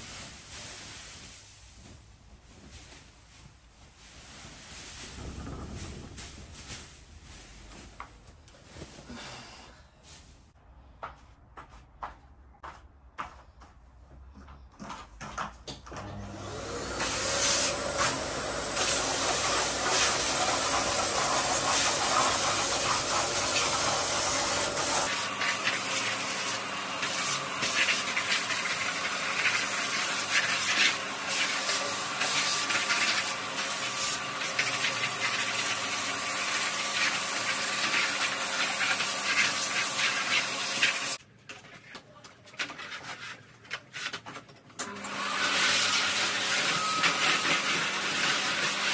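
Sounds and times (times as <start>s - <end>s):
vacuum cleaner running: 15.9s - 41.2s, 44.8s - 48.9s.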